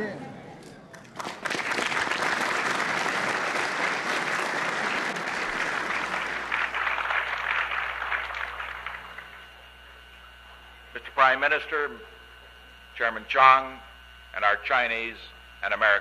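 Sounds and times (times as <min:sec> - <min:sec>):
low steady hum: 0:00.0 - 0:16.0
audience applauding: 0:00.9 - 0:09.5.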